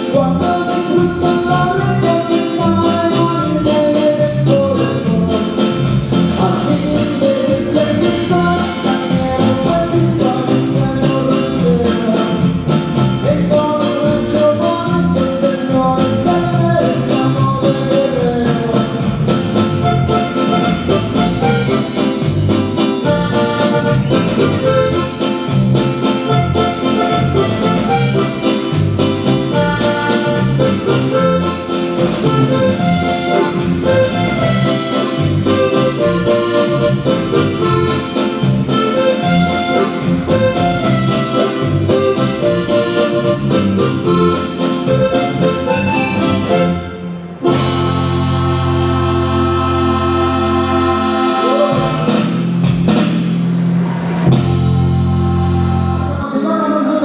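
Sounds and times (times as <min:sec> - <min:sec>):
drums and percussion: 0:00.0 - 0:48.6, 0:51.0 - 0:55.6
melodic lead line: 0:00.0 - 0:53.1, 0:54.2 - 0:56.4
electric bass: 0:00.0 - 0:56.3.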